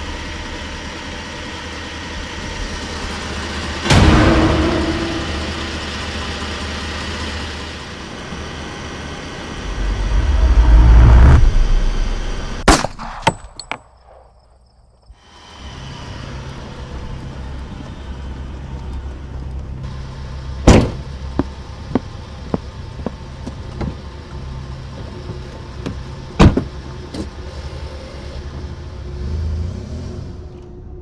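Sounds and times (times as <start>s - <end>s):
car engine running: 0.0s - 12.6s
car door slamming: 20.7s - 21.0s.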